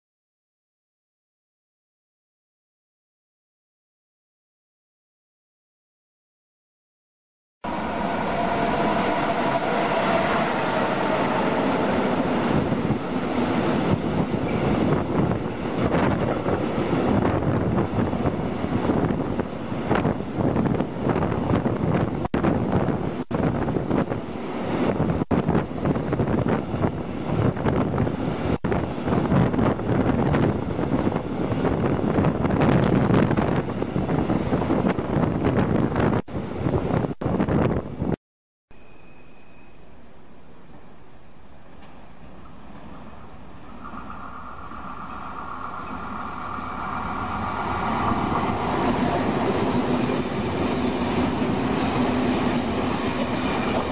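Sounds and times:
freight train passing: 0:07.6 - 0:37.8, 0:38.8 - 0:53.9
wind buffeting microphone: 0:08.8 - 0:38.2, 0:43.8 - 0:53.9.

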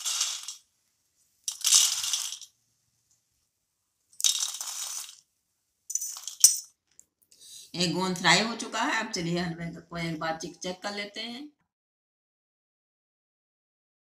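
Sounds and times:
fried pieces clattering onto steel plate: 0:00.0 - 0:00.6, 0:01.5 - 0:02.5, 0:04.2 - 0:05.2, 0:05.9 - 0:06.7.

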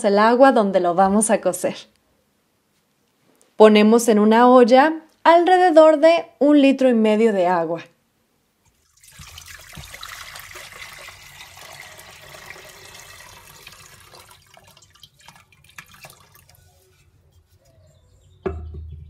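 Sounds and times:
water dripping: 0:08.6 - 0:16.7
water pouring into a metal pot: 0:08.7 - 0:16.8.

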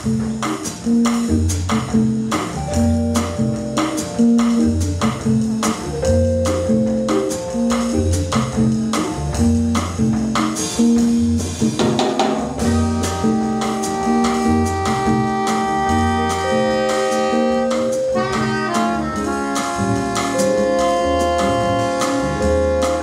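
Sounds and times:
drum kit beat: 0:00.0 - 0:23.0
upright bass and guitar figure: 0:00.0 - 0:23.0
held higher notes: 0:02.6 - 0:10.2, 0:12.6 - 0:23.0.

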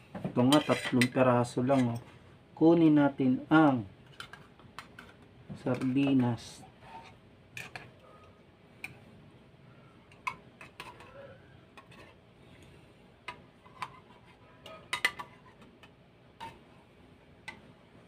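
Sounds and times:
metal utensil scraping a tin: 0:00.5 - 0:01.0.

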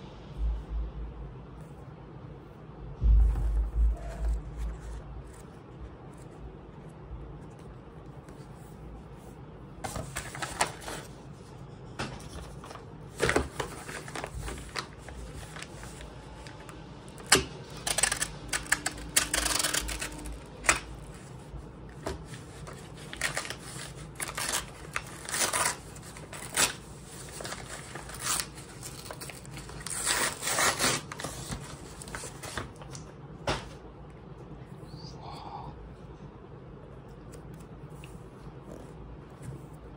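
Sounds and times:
paper mailer rustling and tearing: 0:09.8 - 0:11.2, 0:12.2 - 0:33.0.

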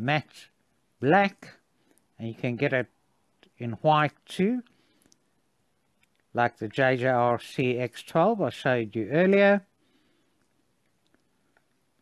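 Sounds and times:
faint clicks: 0:04.6 - 0:06.3, 0:10.3 - 0:12.0.

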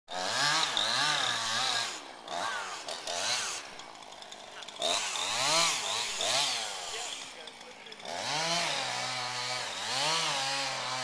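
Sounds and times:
chainsaw revving: 0:00.1 - 0:11.0.

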